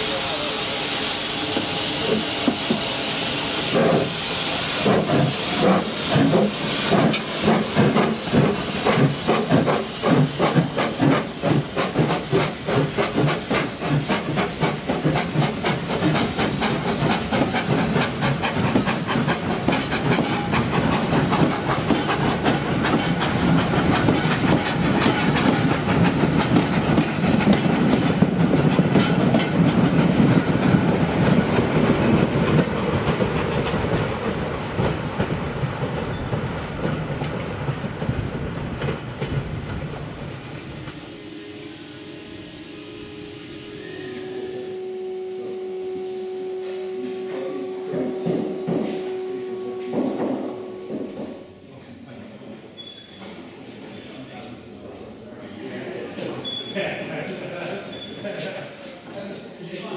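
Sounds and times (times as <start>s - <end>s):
steam hissing: 0.0s - 51.8s
steam locomotive chuffing: 0.0s - 52.9s
train wheels clattering on rails: 1.5s - 41.1s, 47.9s - 51.5s.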